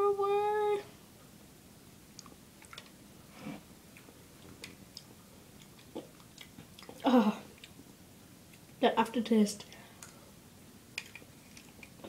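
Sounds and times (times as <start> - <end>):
wet mouth eating sounds: 2.2 - 3.0, 3.9 - 7.8.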